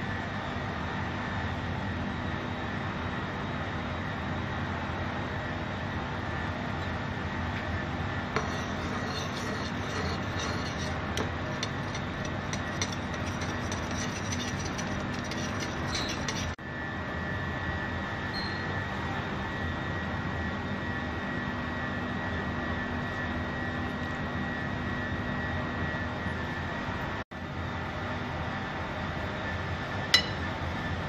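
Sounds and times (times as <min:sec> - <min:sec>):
mechanical drone with whine: 0:00.0 - 0:31.0
spoon scraping a bowl: 0:08.4 - 0:16.6.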